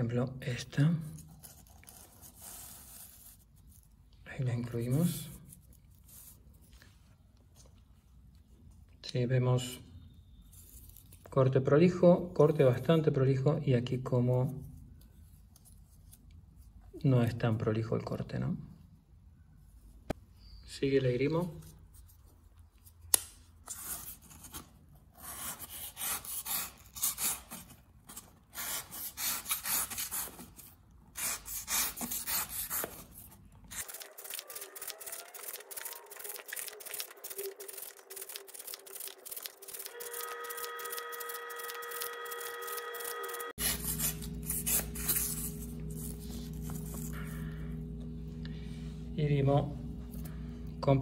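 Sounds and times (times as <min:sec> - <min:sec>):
knife slicing cardboard: 0:25.2 - 0:33.8.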